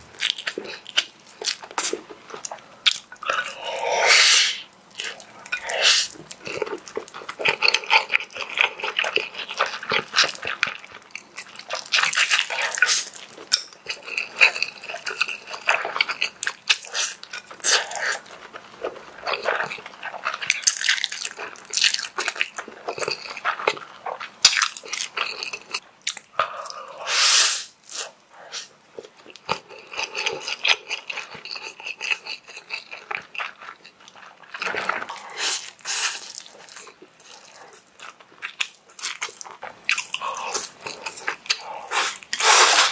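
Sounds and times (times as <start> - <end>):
man slurping noodles: 3.5 - 4.7, 41.9 - 42.9
wet chewing: 27.8 - 42.9.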